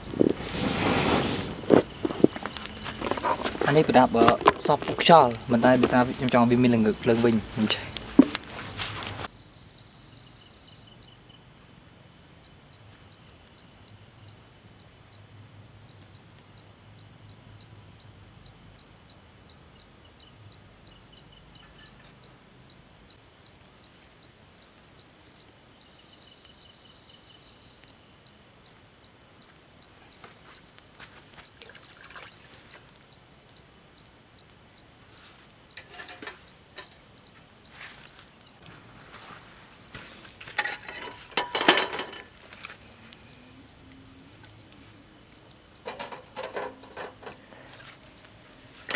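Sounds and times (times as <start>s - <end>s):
insects chirping: 0.0s - 48.9s
regular ticking: 33.0s - 38.7s, 39.8s - 48.9s.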